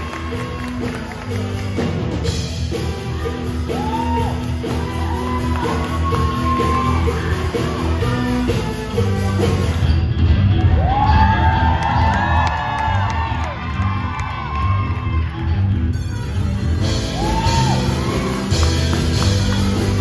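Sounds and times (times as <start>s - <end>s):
music accompaniment with bass beat: 0.0s - 20.0s.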